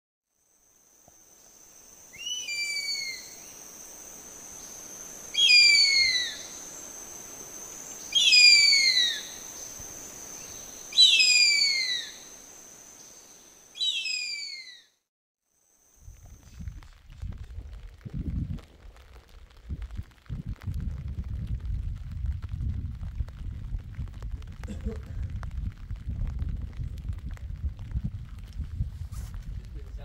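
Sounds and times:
bird of prey screaming calls: 2.1 - 3.5, 5.3 - 6.6, 8.1 - 9.4, 10.9 - 12.3, 13.8 - 15.0.

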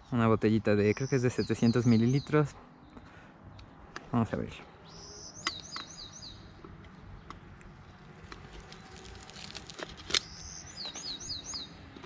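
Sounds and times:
bird chirping: 0.0 - 12.0
mesh sack rustling: 8.4 - 10.1.

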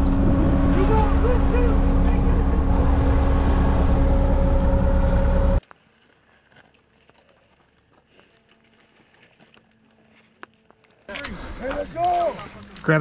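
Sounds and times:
diesel engine running: 0.0 - 5.6.

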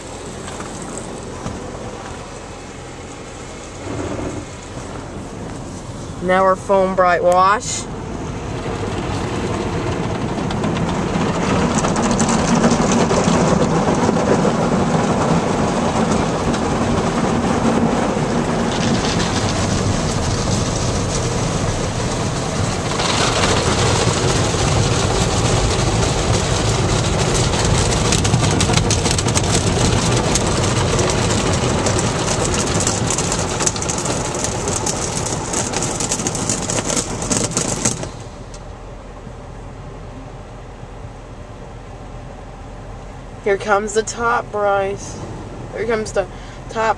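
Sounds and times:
car wash spraying water: 0.0 - 46.9.

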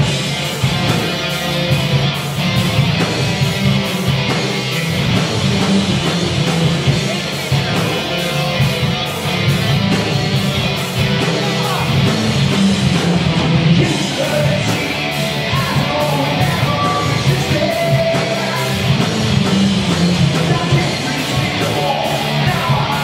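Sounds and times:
bass guitar: 0.0 - 23.0
distorted electric guitars: 0.0 - 23.0
drums and cymbals: 0.0 - 23.0
person singing: 13.8 - 19.1, 20.4 - 23.0.

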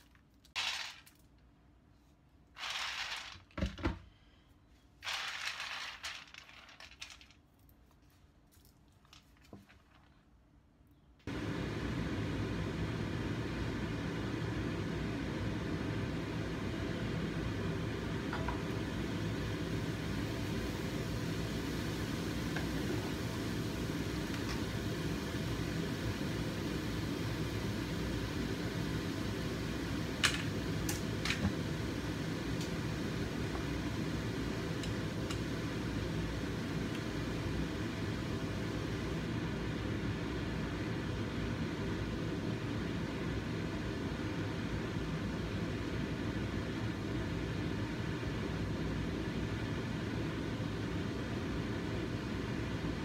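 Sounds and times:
low fan-like hum: 9.9 - 53.0.

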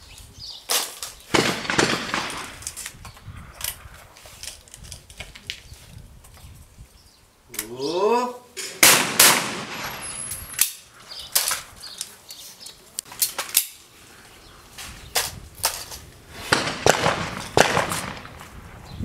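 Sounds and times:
shotgun shots with echo: 1.3 - 2.6, 8.7 - 10.3, 16.4 - 18.5.

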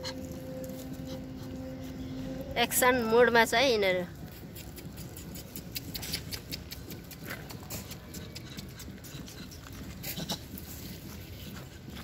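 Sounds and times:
crackle: 0.0 - 3.0
rustling in dry leaves: 0.0 - 5.6
steady low rumble: 0.0 - 8.2.

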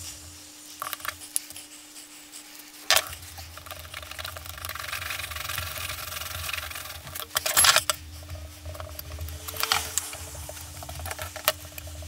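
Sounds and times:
stick scraping on sandpaper: 0.0 - 12.0.

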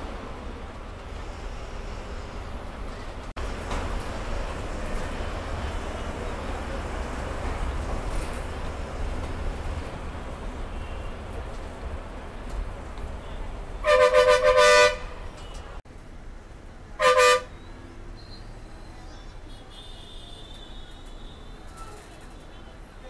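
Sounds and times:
low traffic rumble: 0.0 - 20.2
vehicle horn honking: 13.8 - 15.6, 17.0 - 17.5.

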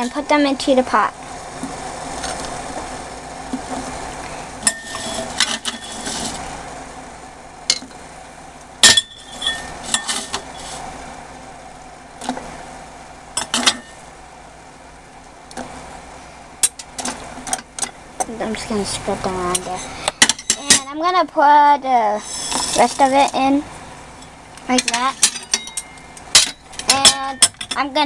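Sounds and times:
metal spoon clinking on bowl and pot: 24.8 - 27.8.

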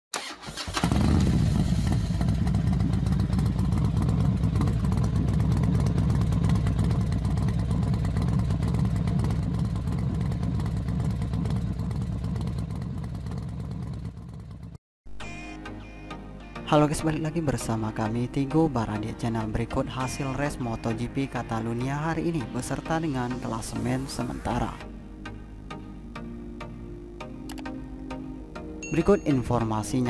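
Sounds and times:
motorcycle engine rumbling: 0.2 - 14.8.

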